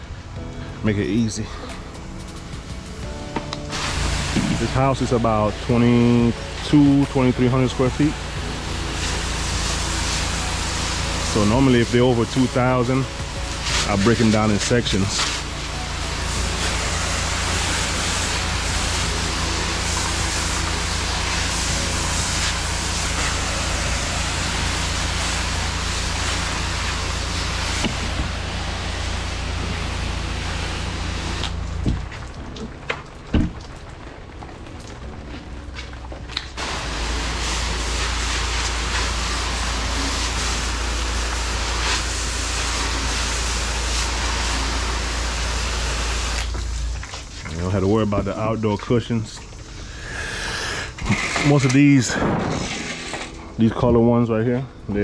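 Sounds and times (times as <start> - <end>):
pressure washer spraying: 1.6 - 32.8, 36.5 - 48.4.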